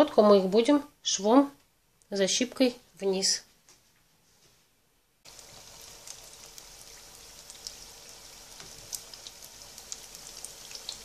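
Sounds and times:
pies deep-frying in hot oil: 5.2 - 11.0
oil popping and crackling: 5.3 - 11.0.

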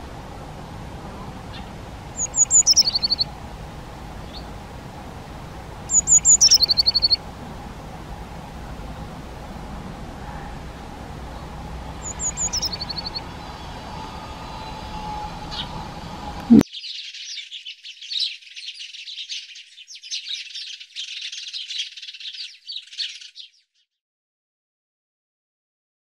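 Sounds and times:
faint steady hum: 0.0 - 16.6
sparrows chirping chatter: 1.2 - 3.3, 4.2 - 4.6, 5.6 - 7.2, 11.2 - 23.8
high falling chirps: 2.2 - 3.3, 5.9 - 7.2, 12.0 - 15.8.

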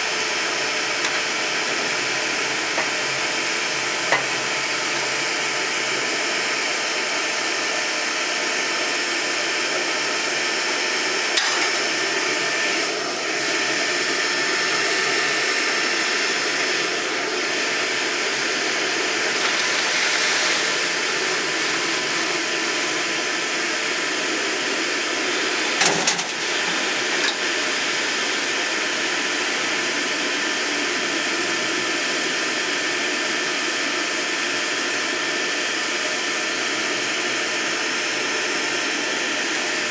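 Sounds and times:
electric blower whirring: 0.0 - 8.0, 10.5 - 30.5.

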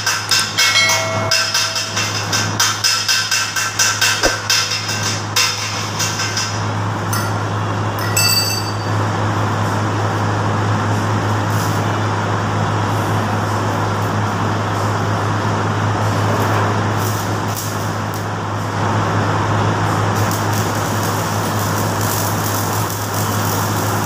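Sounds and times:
constant low hum: 0.3 - 11.2
welding arc crackling: 17.0 - 24.0.

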